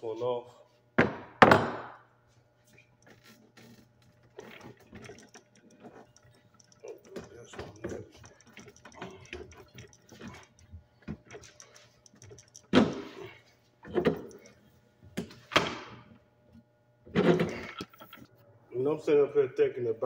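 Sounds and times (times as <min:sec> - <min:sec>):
wrench clicking on metal: 0:04.4 - 0:13.2.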